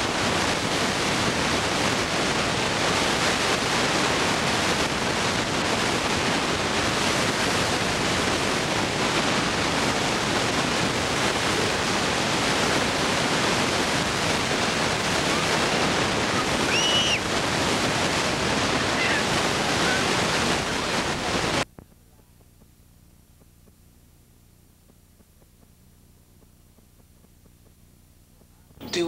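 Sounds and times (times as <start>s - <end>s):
wind buffeting microphone: 0.0s - 21.7s
faint tape hiss: 4.0s - 29.0s.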